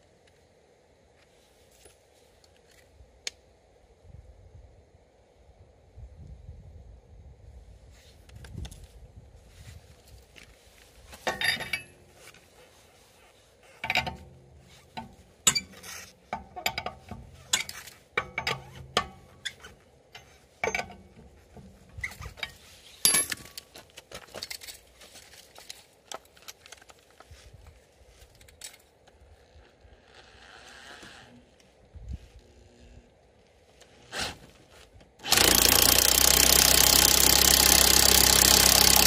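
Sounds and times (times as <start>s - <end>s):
lug wrench clinking on lug nuts: 11.2s - 12.0s, 35.3s - 39.0s.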